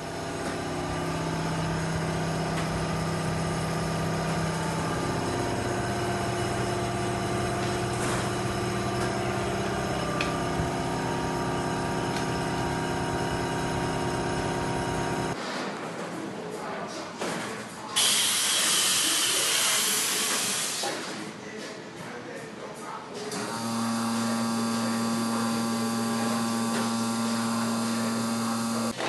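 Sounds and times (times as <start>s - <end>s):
industrial machinery hum: 0.0s - 15.4s, 23.3s - 29.0s.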